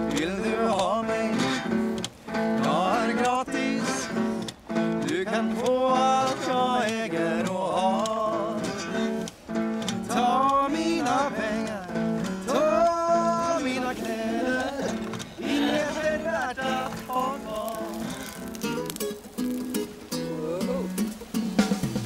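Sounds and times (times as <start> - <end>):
acoustic guitar strumming chords: 0.0 - 22.0
person singing: 2.6 - 18.9.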